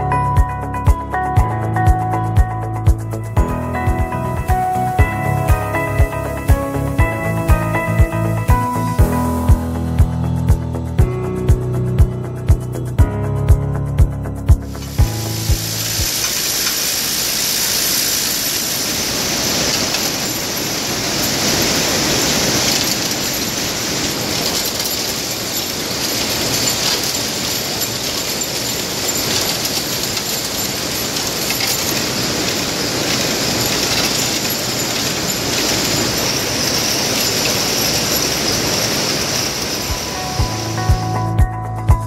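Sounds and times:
constant high hiss: 0:02.7 - 0:11.0, 0:14.6 - 0:41.4
factory machinery running: 0:14.7 - 0:41.1.

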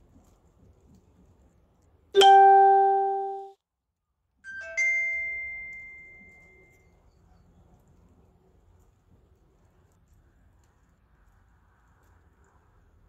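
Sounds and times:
electronic ding-dong chime: 0:02.2 - 0:03.5.

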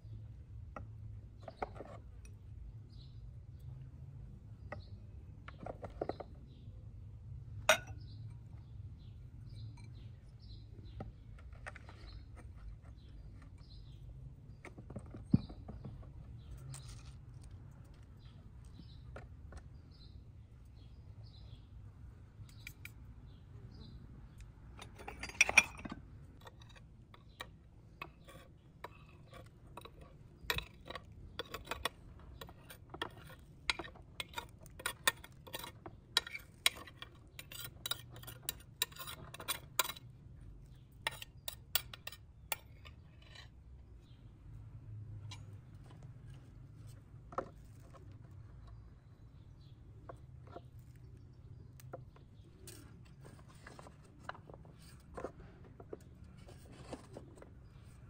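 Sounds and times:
dishes knocking and clinking: 0:07.7 - 0:08.1, 0:24.8 - 0:26.0
metal spoon scraping bowl: 0:24.8 - 0:40.1, 0:40.7 - 0:43.6
plastic jar being handled: 0:51.9 - 0:58.0.

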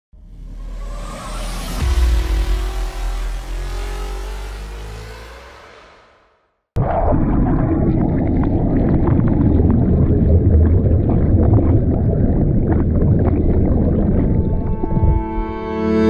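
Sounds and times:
steady low drone: 0:00.2 - 0:05.9, 0:09.7 - 0:16.0
muffled underwater water rushing: 0:06.8 - 0:15.6.

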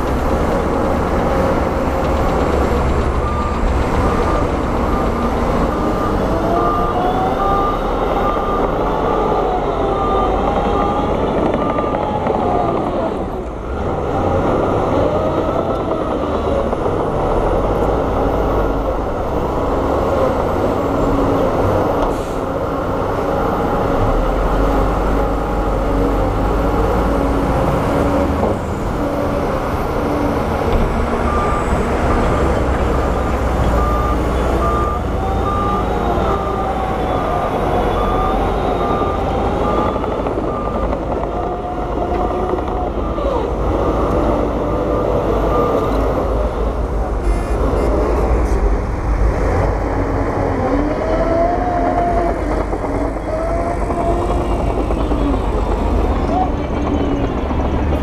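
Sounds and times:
truck diesel engine rumbling: 0:00.0 - 0:58.0.

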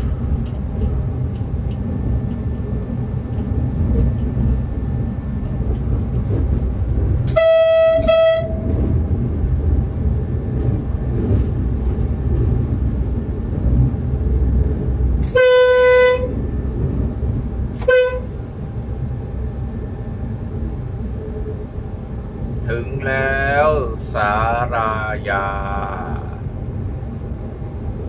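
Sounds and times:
moving train rumble: 0:00.0 - 0:28.0
train horn blasts: 0:07.3 - 0:09.0, 0:15.2 - 0:16.4, 0:17.8 - 0:18.4.

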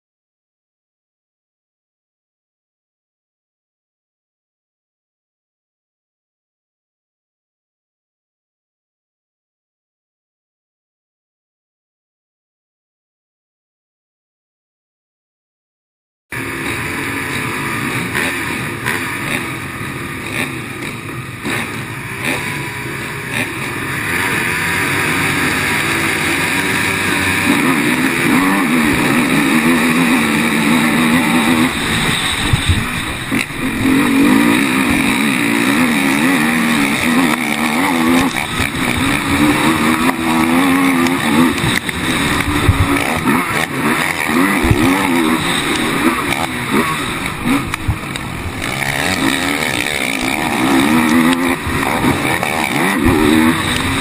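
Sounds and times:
racing quad engines revving: 0:16.3 - 0:54.0.

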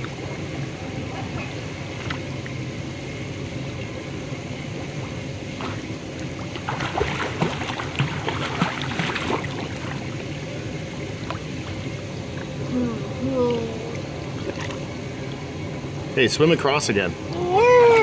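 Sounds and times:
pool water splashing: 0:03.5 - 0:15.7.

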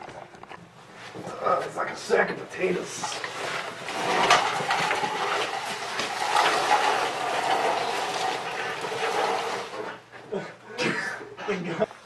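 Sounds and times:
body dragged across floor: 0:02.7 - 0:10.1.

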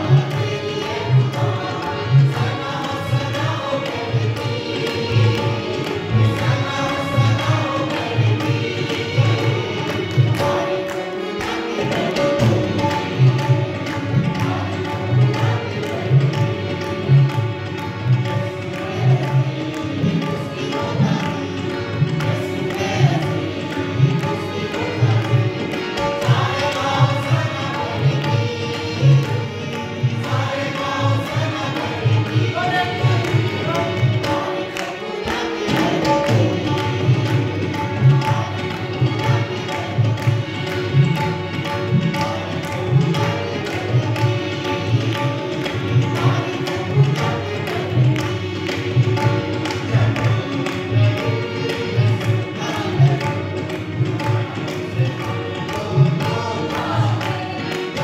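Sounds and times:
group singing: 0:00.0 - 0:58.0
harmonium: 0:00.0 - 0:58.0
keyboard: 0:00.0 - 0:58.0
tabla beat: 0:00.0 - 0:58.0
hand clapping: 0:21.2 - 0:58.0.

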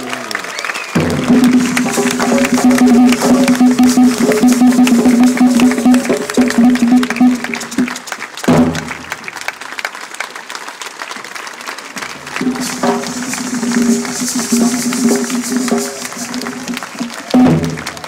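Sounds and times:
crowd applauding: 0:00.0 - 0:18.0
folk band playing live: 0:01.0 - 0:09.0, 0:12.0 - 0:17.8.

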